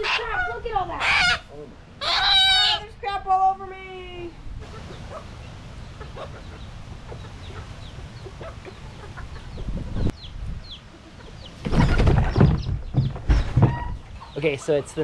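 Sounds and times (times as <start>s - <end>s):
chicks peeping: 4.6s - 14.9s
chickens clucking: 4.6s - 15.0s
wings flapping: 11.6s - 13.7s.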